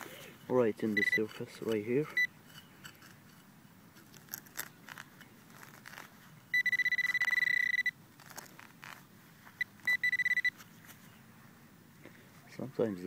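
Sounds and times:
trowel scraping into turf: 0.0 - 6.2
metal detector electronic tone: 0.8 - 1.4, 2.0 - 2.4, 6.5 - 8.0, 9.6 - 10.6.

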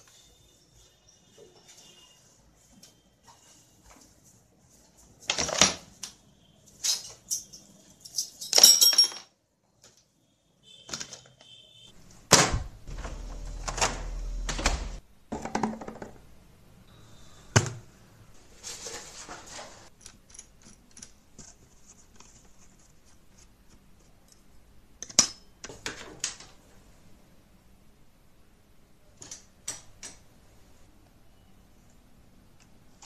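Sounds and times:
low rumble: 12.5 - 15.0
brief high tone: 12.6 - 15.0.

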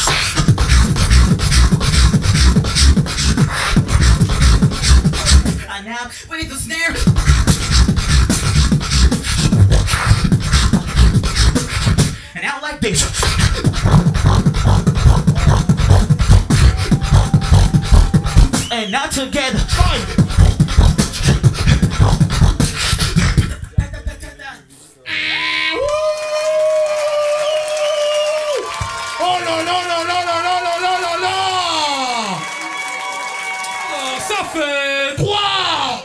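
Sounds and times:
pitched vocal glides: 0.0 - 6.1, 12.8 - 18.8, 19.4 - 24.2
beatboxing through speakers: 0.0 - 25.0.

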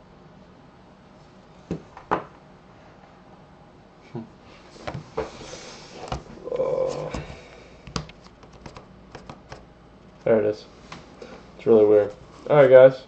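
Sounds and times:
sharp knocks and clicks: 7.9 - 9.6.

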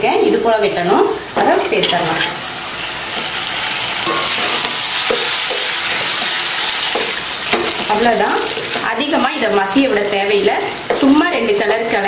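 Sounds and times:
tomatoes sizzling in hot oil: 0.0 - 12.0
wooden spatula stirring in pan: 3.0 - 12.0.

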